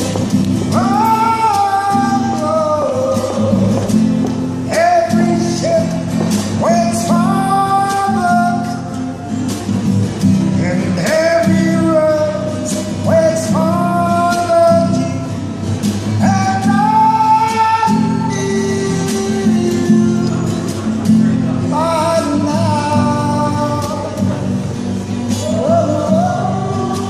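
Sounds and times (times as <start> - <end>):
man singing: 0.0 - 9.4, 10.4 - 24.7, 25.3 - 27.0
guitar strumming: 0.0 - 27.0.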